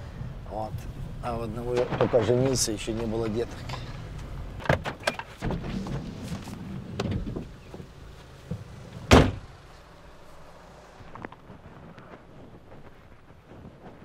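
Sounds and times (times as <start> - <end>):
car door slamming shut: 8.5 - 9.5.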